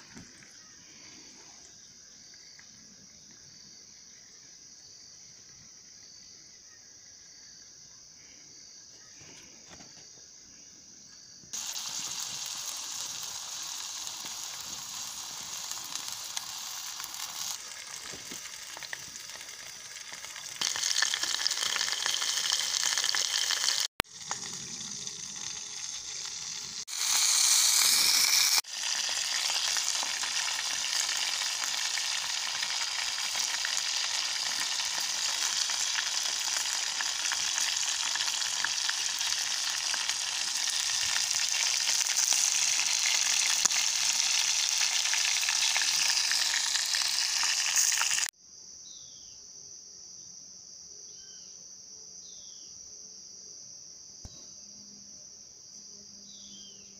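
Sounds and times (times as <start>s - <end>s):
food sizzling in pots: 0.0s - 1.4s, 11.5s - 48.3s.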